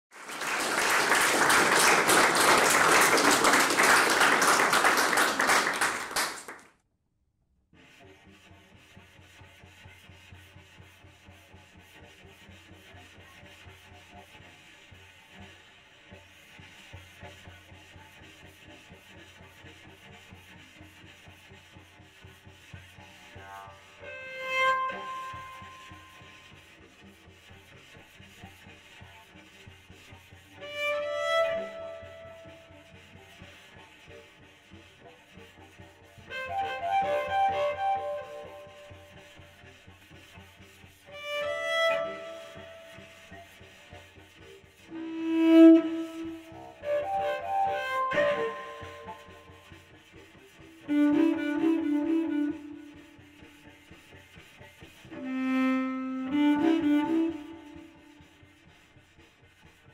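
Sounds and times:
scratchy bowed cello with electronics: 0:07.8 - 0:59.9
bowed cello note: 0:22.6 - 0:26.9, 0:30.3 - 0:33.9, 0:36.1 - 0:54.5, 0:55.1 - 0:58.8.

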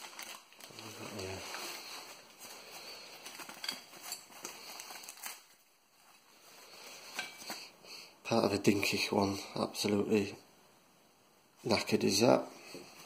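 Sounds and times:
bubble wrap crinkling: 0:00.0 - 0:07.7.

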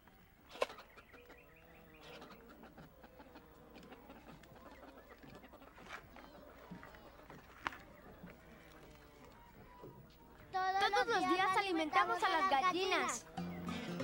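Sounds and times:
hens clucking: 0:00.0 - 0:10.4.

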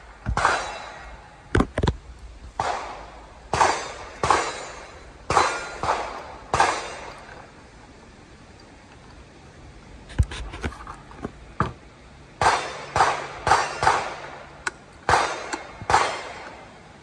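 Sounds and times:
gunshots with echo: 0:02.6 - 0:07.4, 0:12.4 - 0:14.4, 0:15.1 - 0:16.4.

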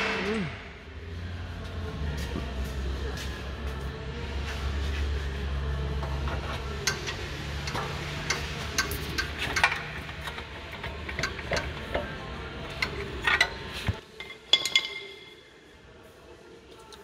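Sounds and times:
metal clicks and knocks: 0:06.8 - 0:12.1.

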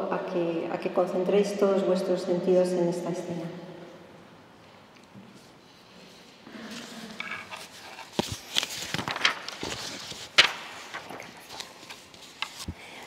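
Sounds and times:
paper rustling: 0:06.8 - 0:12.7.

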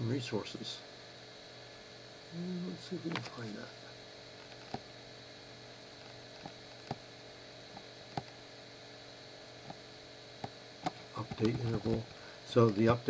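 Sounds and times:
faint high whine: 0:00.0 - 0:13.0
low electrical hum: 0:00.0 - 0:13.0.

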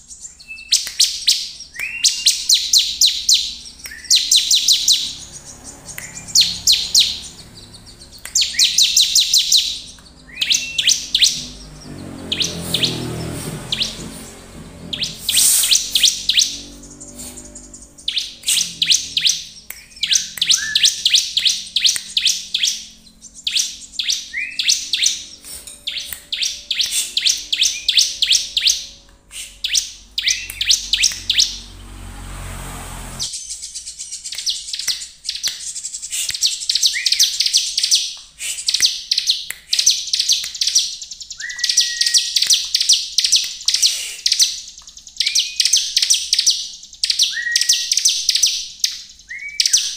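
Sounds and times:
bird singing rapid high chirps: 0:00.0 - 0:49.9
low whistled bird note: 0:14.9 - 0:31.8.

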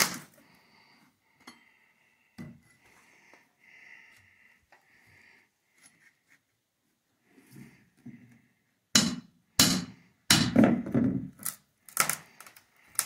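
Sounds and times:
hammer striking steel bar: 0:09.0 - 0:10.6.

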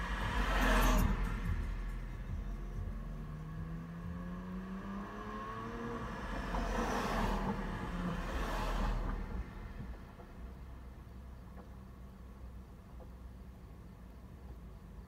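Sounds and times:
car overtaking whoosh: 0:00.0 - 0:10.2
car interior road rumble: 0:00.0 - 0:15.0.

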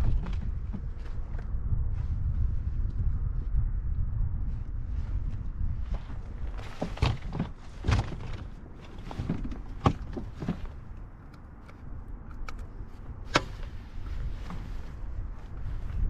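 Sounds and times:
knocks and bumps in a kayak: 0:00.0 - 0:03.0, 0:05.1 - 0:11.0
wind rumble on microphone: 0:00.0 - 0:16.0.

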